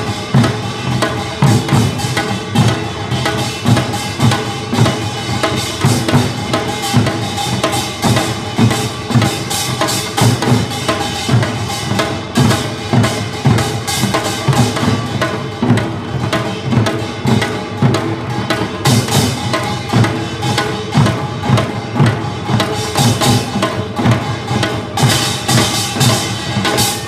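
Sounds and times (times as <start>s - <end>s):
drums playing fast rhythm: 0.0s - 27.0s.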